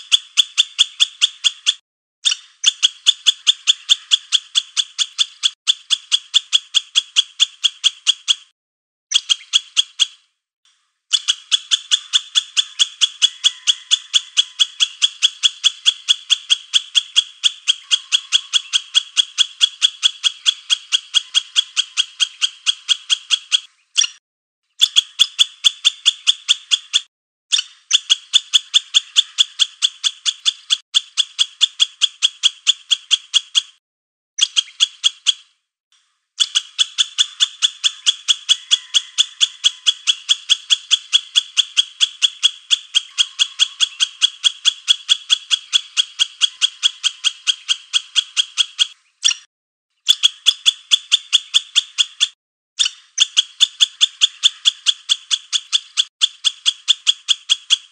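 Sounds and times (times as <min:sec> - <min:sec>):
rapid high animal chirps: 0:00.0 - 0:10.4, 0:11.0 - 0:33.8, 0:34.4 - 0:35.7, 0:36.3 - 0:57.9.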